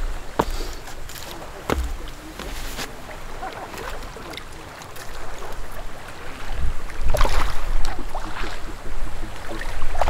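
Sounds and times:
wind rumbling on microphone: 5.1 - 10.0.

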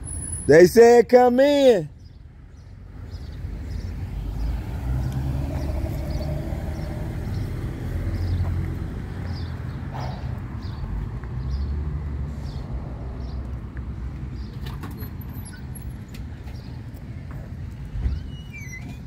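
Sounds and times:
footsteps on asphalt: 7.3 - 9.8, 10.4 - 11.6, 13.2 - 14.5.

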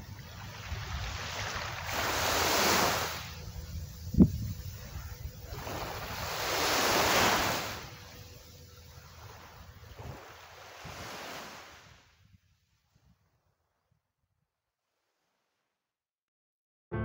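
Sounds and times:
small waves washing up beach: 0.0 - 3.9, 4.5 - 8.2, 8.9 - 12.2.

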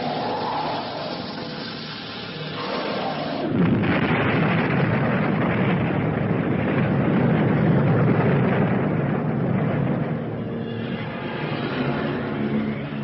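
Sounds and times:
magical blast rush: 0.0 - 6.5.

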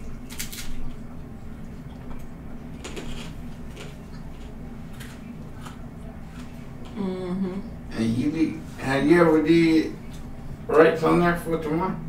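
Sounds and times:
low background hum: 0.0 - 12.0
chewing crispy chicken skin: 0.1 - 6.5.

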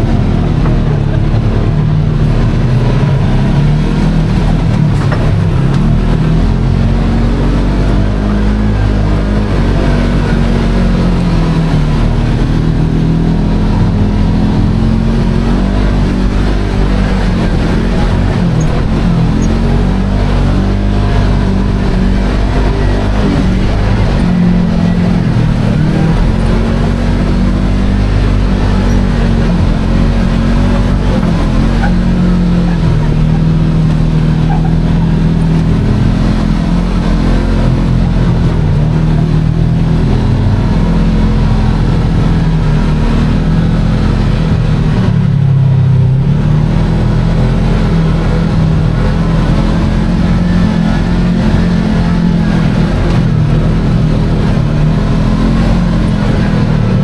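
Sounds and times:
off-road vehicle engine running: 0.0 - 57.0.

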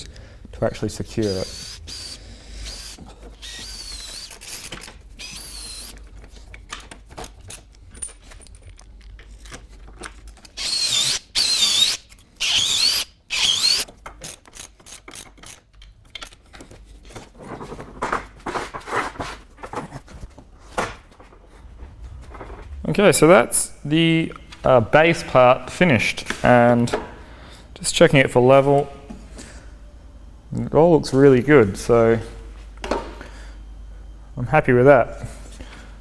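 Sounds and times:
cordless drill whining: 1.2 - 6.0, 10.6 - 13.8.

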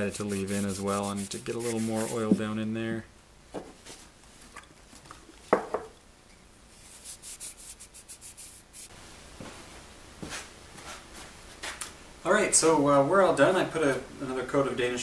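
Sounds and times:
paper towel wiping wood: 0.0 - 2.4, 6.8 - 8.9.

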